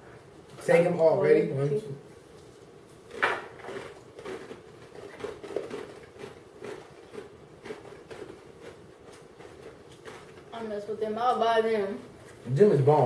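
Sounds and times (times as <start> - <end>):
people chewing snacks: 2.4 - 10.5.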